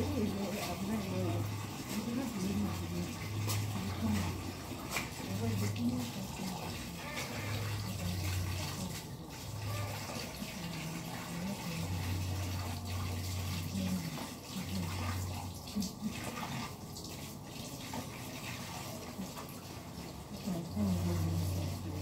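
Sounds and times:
hands sloshing laundry in water: 0.0 - 22.0
tap water running into drum: 0.0 - 22.0.

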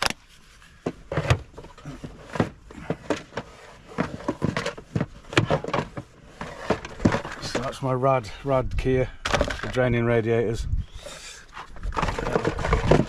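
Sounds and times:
tools and cases rattling: 0.8 - 7.8, 9.2 - 9.8, 11.5 - 13.0.

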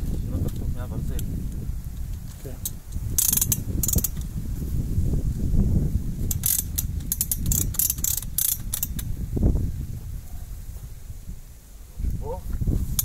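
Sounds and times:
ratchet clicking: 2.1 - 4.3, 6.3 - 9.1.

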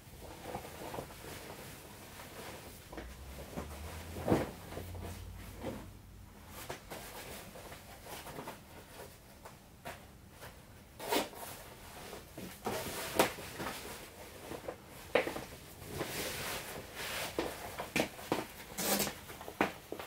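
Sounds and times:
fabric rustling: 0.1 - 9.4.

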